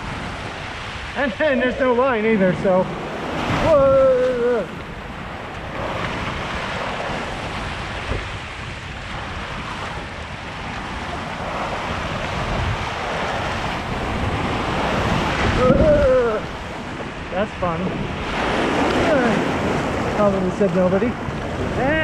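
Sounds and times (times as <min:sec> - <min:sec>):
rushing water: 0:00.0 - 0:22.0
wind buffeting microphone: 0:00.0 - 0:22.0
person shouting: 0:03.6 - 0:04.8, 0:15.6 - 0:16.5.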